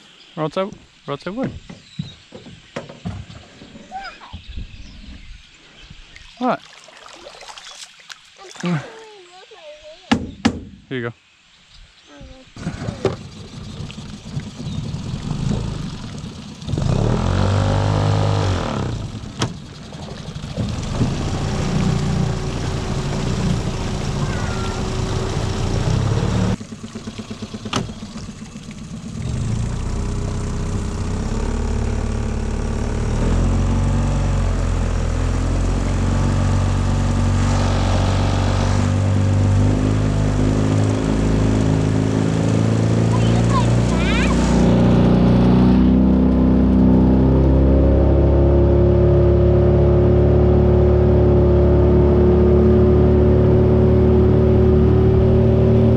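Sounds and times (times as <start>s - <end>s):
outboard motor running: 12.5s - 55.9s.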